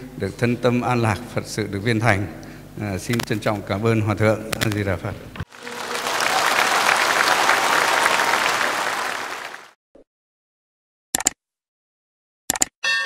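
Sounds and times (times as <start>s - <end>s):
audience applauding: 5.5s - 9.8s.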